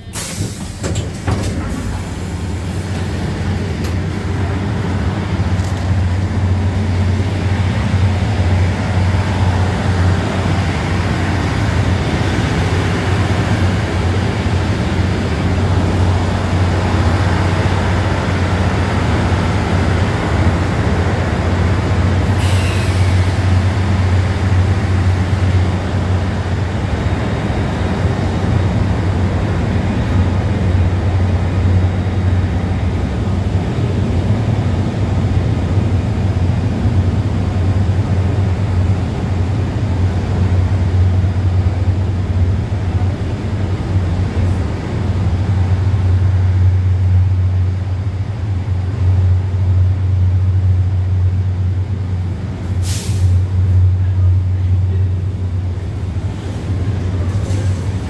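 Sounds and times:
short sharp hiss: 0:00.0 - 0:00.8, 0:22.4 - 0:23.4, 0:52.8 - 0:53.4
train rumbling: 0:00.0 - 0:58.0.

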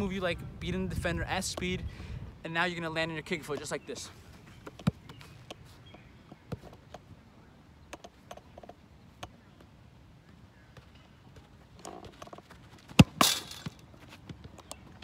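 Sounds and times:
footsteps and dribbling on turf: 0:03.3 - 0:07.1, 0:09.5 - 0:15.0
ball rattling chain-link fence: 0:11.8 - 0:13.8
ball kicked thump: 0:12.9 - 0:13.7.

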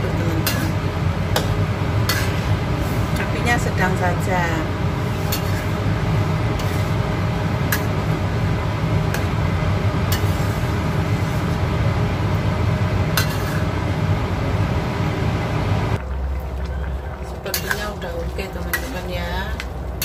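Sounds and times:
stove flame rushing: 0:00.0 - 0:20.0.

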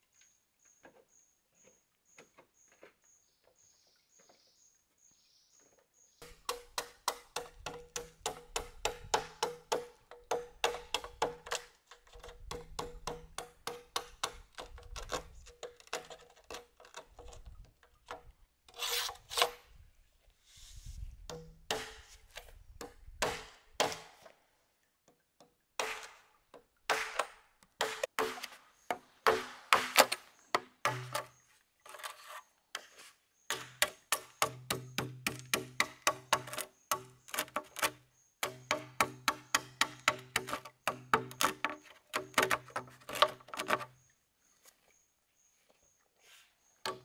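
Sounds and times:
blade chopping bamboo: 0:06.2 - 0:16.6, 0:21.3 - 0:22.1, 0:22.8 - 0:24.2, 0:25.8 - 0:26.3, 0:26.9 - 0:31.4, 0:33.5 - 0:43.9
blade scraping bamboo: 0:13.9 - 0:19.7, 0:29.4 - 0:44.0.

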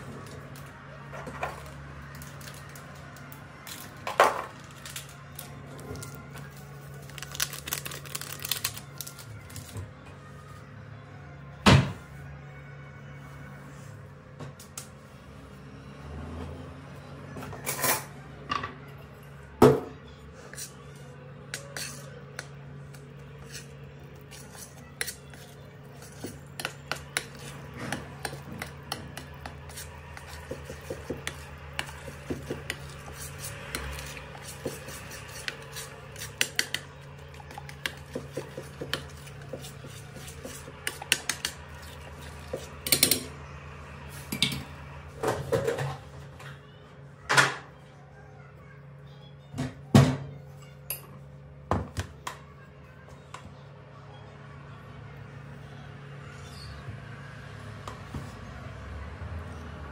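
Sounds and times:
spoon stirring in ceramic bowl: 0:20.4 - 0:43.4.

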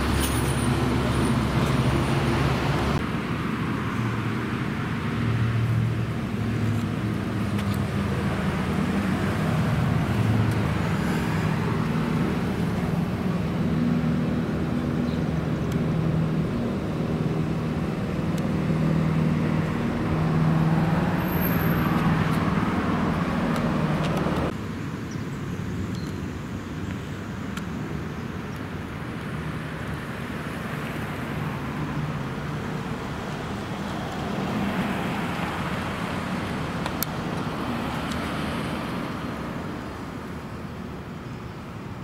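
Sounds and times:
car engine: 0:00.0 - 0:24.6
road noise: 0:00.0 - 0:42.0.

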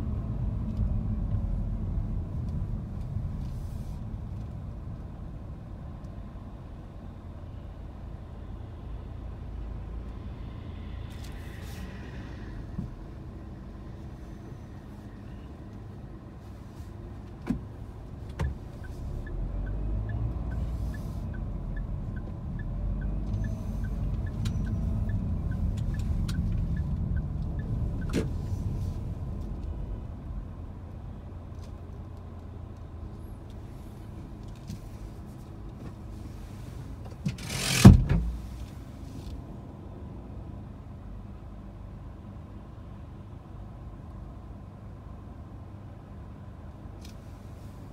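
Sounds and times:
car engine and road rumble: 0:00.0 - 0:47.9
light even ticking: 0:18.4 - 0:28.2.

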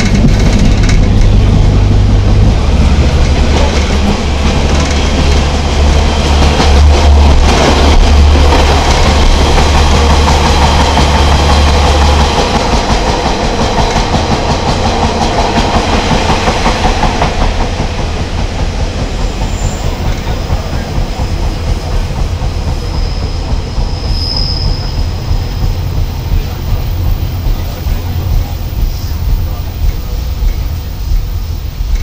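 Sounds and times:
train wheels and engine rumbling: 0:00.0 - 0:32.0
faint high squeal: 0:22.9 - 0:25.1.

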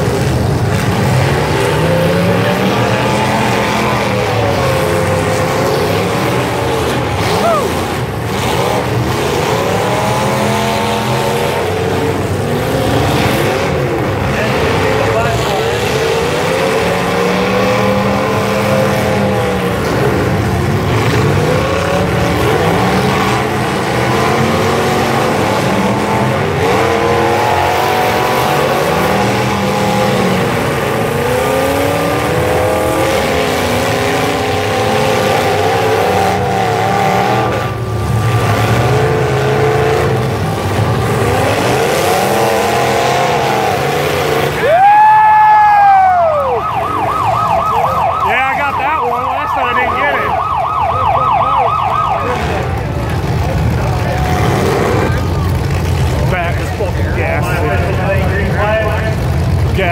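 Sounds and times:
car engines revving: 0:00.0 - 0:59.9
cars ramming each other: 0:00.0 - 0:59.9
loud siren: 0:44.6 - 0:52.9.

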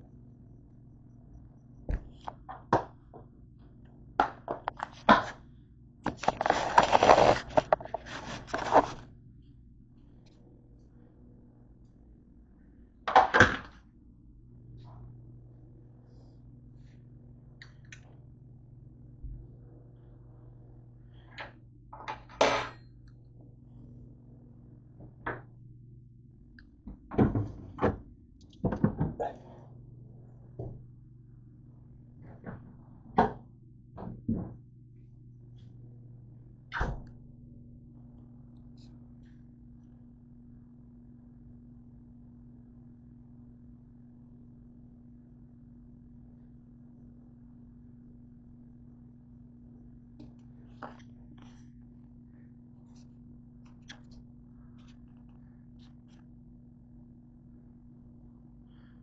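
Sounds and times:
steady low hum: 0:00.0 - 0:59.0
handling noise on microphone: 0:06.1 - 0:09.1.

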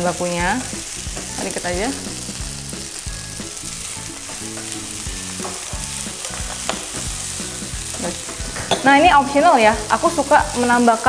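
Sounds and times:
rice sizzling in frying pan: 0:00.0 - 0:11.0
spatula scraping pan: 0:04.1 - 0:09.0.

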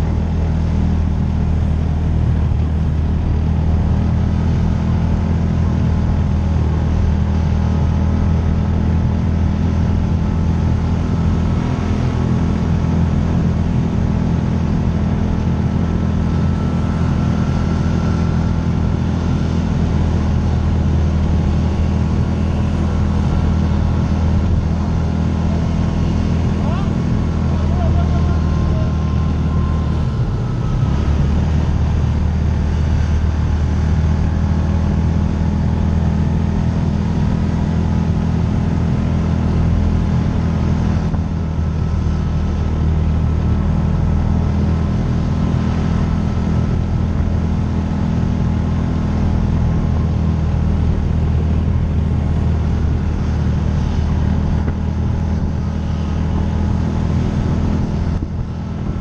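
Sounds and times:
utility vehicle engine under load: 0:00.0 - 0:59.0.

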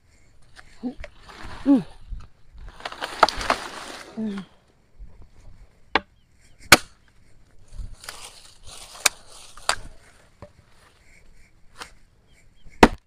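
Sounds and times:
dry branches and leaves rustling: 0:00.0 - 0:13.0
axe chopping wood: 0:06.7 - 0:07.0, 0:12.8 - 0:13.0.

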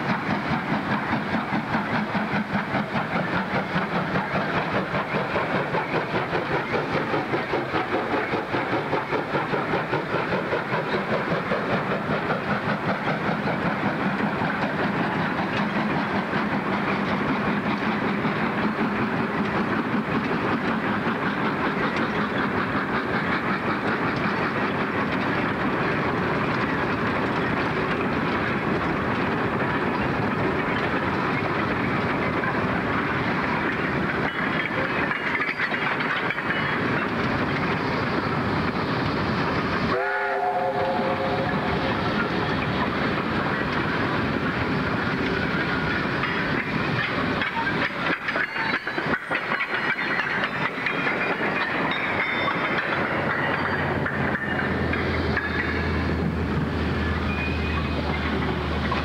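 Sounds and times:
steam locomotive exhaust: 0:00.0 - 0:59.0
steam whistle: 0:39.8 - 0:41.9.

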